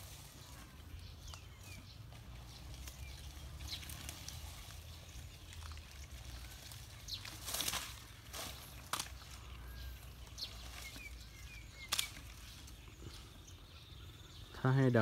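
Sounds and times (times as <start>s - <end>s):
loud rustle: 6.4s - 9.2s
bird chirps: 9.0s - 15.0s.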